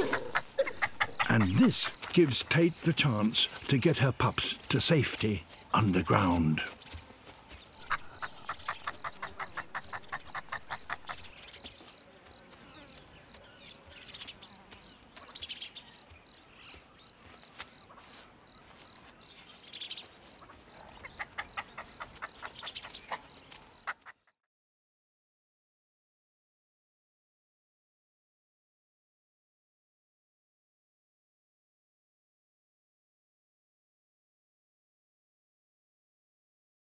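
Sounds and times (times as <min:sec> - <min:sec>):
insects chirping: 0:00.0 - 0:24.0.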